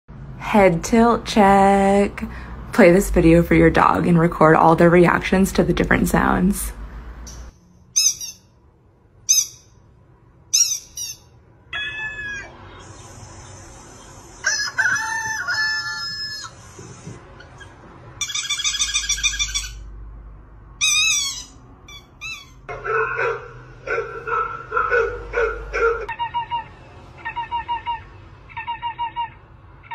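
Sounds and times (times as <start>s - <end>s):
rapidly repeated bird calls: 10.5s - 15.2s, 26.1s - 29.9s.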